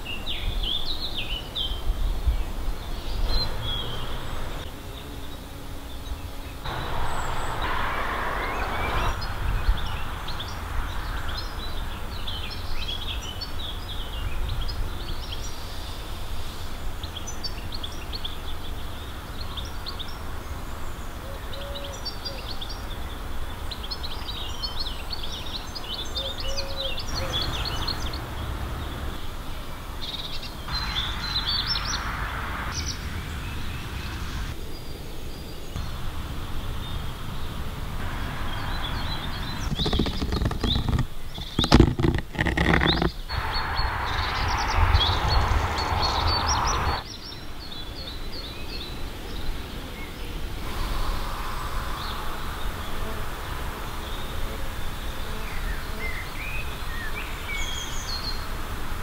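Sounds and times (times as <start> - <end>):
songbirds chirping and singing: 0.0 - 53.1
steady low rumble: 27.2 - 34.6, 35.8 - 41.6, 43.3 - 47.1.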